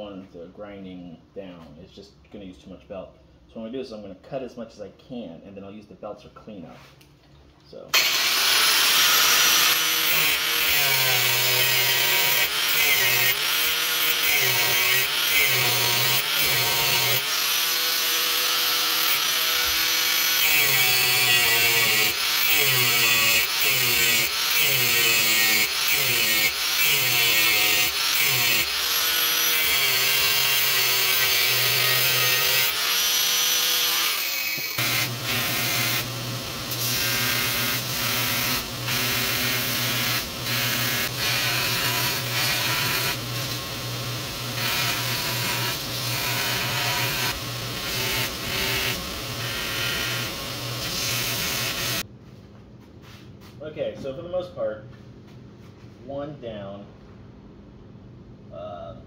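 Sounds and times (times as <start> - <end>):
power tool cutting steel: 8.0 - 52.0.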